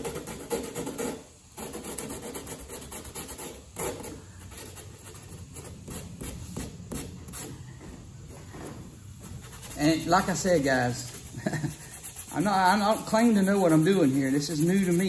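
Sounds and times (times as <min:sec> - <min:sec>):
sandpaper scuffing: 0:00.0 - 0:15.0.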